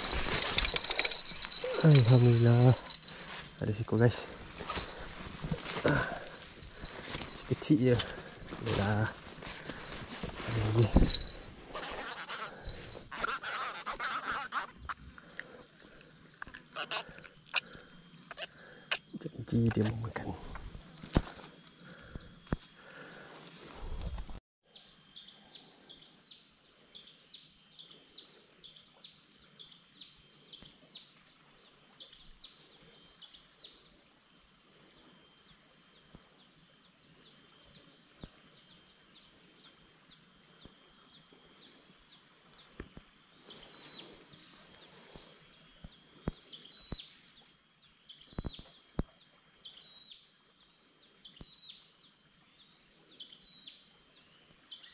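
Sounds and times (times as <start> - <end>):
high-pitched insect drone: 0.0 - 25.3.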